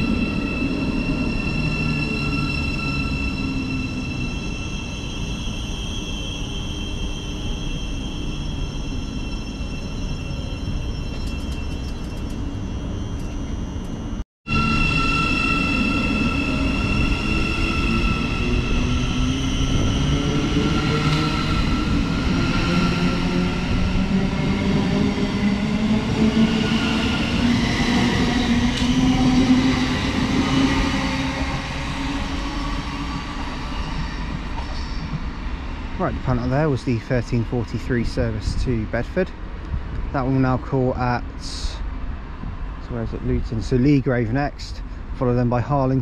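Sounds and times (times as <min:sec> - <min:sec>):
low train rumble: 0:00.0 - 0:46.0.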